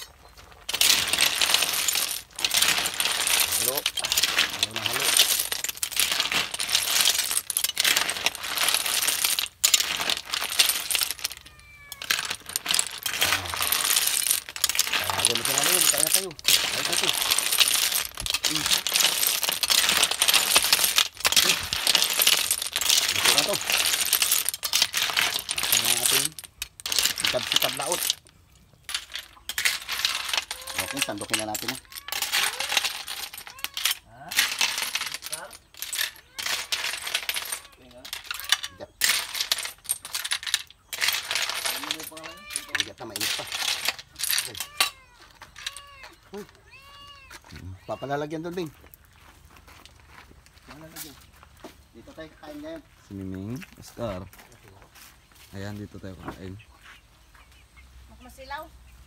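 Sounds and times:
shells clattering in a metal wok: 0:00.7 - 0:45.8.

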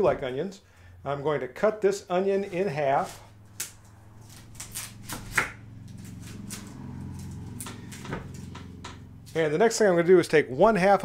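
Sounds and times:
knife cutting onion: 0:03.0 - 0:06.8.

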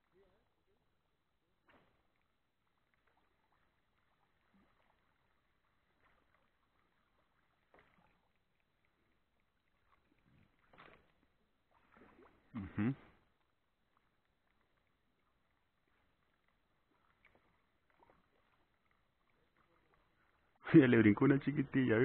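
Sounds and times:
water lapping: 0:00.0 - 0:22.0.

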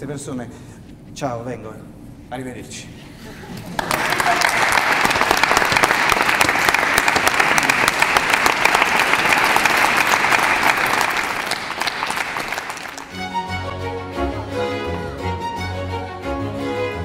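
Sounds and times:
audience applauding: 0:03.6 - 0:13.3.

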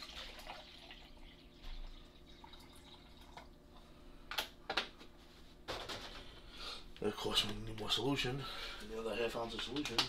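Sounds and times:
water trickling into a tank: 0:00.0 - 0:03.9.

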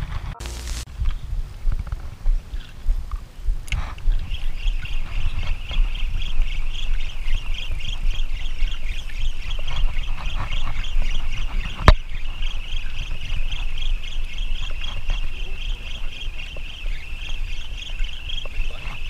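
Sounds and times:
pulsing high whirring: 0:00.0 - 0:00.9
wind on microphone: 0:00.0 - 0:19.0.

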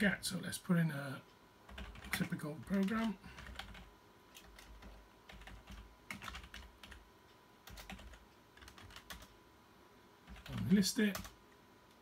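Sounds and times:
faint keyboard typing: 0:01.6 - 0:09.4, 0:10.2 - 0:12.0.

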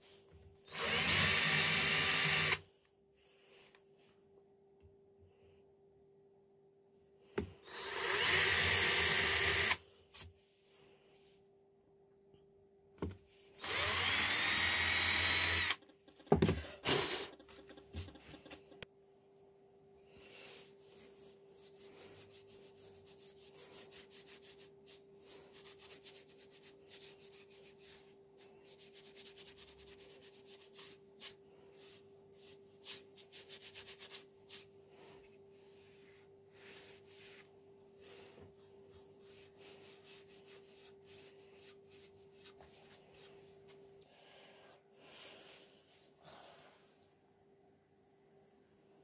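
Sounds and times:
sponge rubbing on wood: 0:20.8 - 0:34.8, 0:35.6 - 0:43.5.

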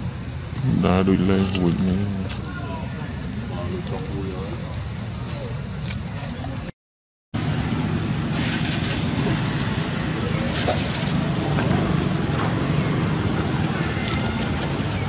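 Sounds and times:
dry leaves crunching: 0:07.4 - 0:11.6.

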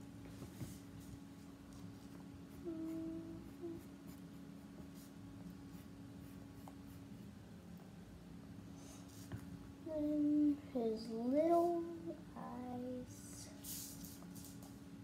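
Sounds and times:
pencil scratching on paper: 0:01.7 - 0:07.2.

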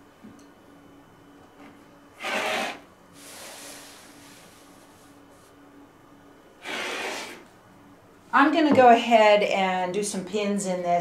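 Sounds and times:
rotary cutter slicing fabric: 0:02.2 - 0:02.8, 0:06.6 - 0:07.4.

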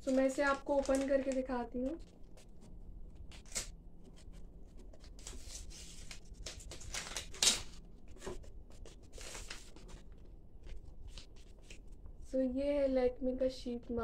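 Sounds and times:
foil sachet crinkling and tearing: 0:00.0 - 0:02.4, 0:05.2 - 0:07.8.

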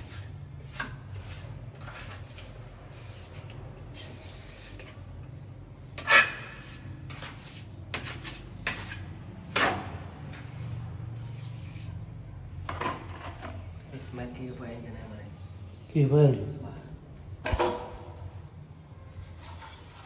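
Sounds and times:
scraping on hard surface: 0:00.0 - 0:05.2, 0:05.9 - 0:14.4, 0:19.1 - 0:20.0.

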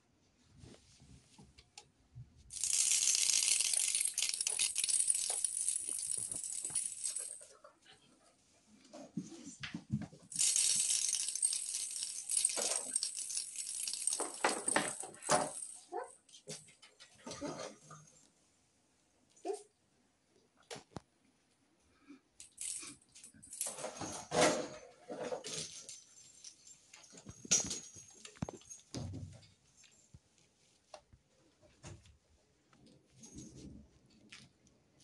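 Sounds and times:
package rattling and crinkling: 0:02.5 - 0:07.4, 0:10.3 - 0:15.7.

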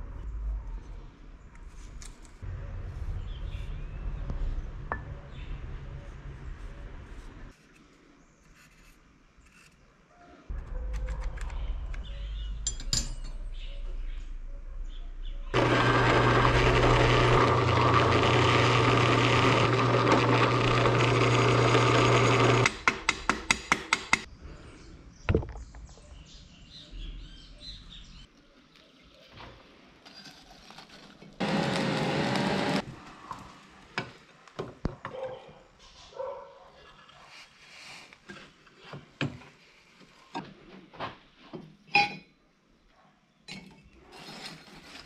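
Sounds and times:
drill press boring into wood: 0:15.6 - 0:22.8, 0:31.4 - 0:32.9.

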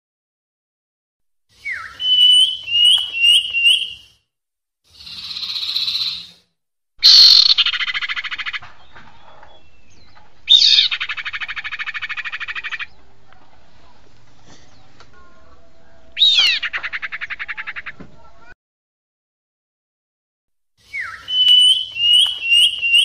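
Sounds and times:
bird whistle and clear notes: 0:01.5 - 0:04.2, 0:05.0 - 0:06.4, 0:07.0 - 0:08.6, 0:20.8 - 0:23.0
bird harsh hiss: 0:04.9 - 0:06.4.

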